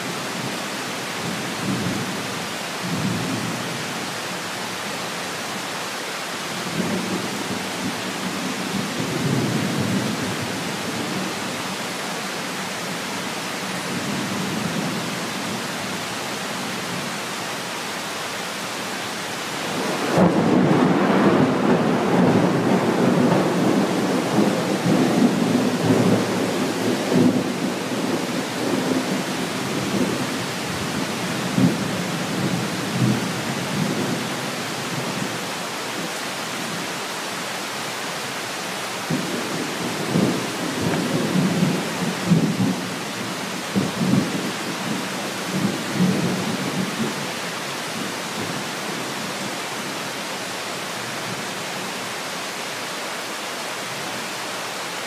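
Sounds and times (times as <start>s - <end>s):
heavy rain: 0.0s - 55.0s
rolling thunder: 19.7s - 29.1s.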